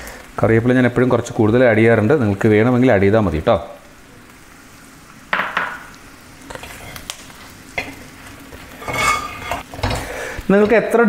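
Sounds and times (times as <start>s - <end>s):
meat sizzling in oil: 0.0s - 11.0s
metal turner scraping a pot: 6.5s - 10.1s.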